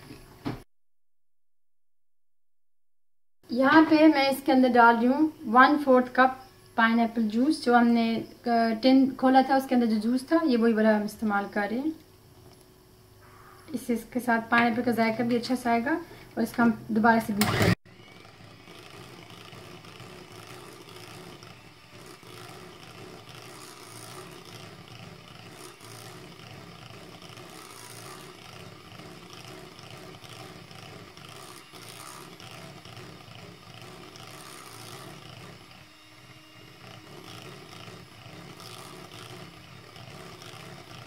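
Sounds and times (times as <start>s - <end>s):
electric hand mixer whirring: 14.5s - 41.0s.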